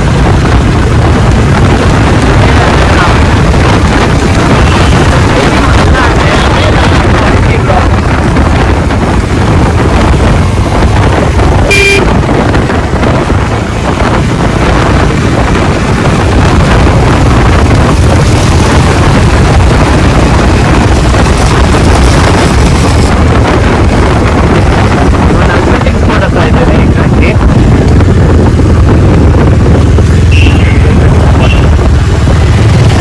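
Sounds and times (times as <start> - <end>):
motorcycle engine running: 0.0 - 33.0
wind buffeting microphone: 0.0 - 33.0
short vehicle horn toot: 11.7 - 12.1.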